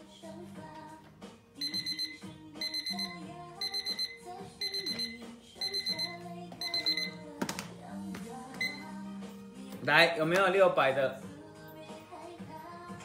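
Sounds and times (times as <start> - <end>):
music with guitar and singing: 0.0 - 13.0
timer alarm beeping: 1.6 - 7.2, 8.6 - 8.9.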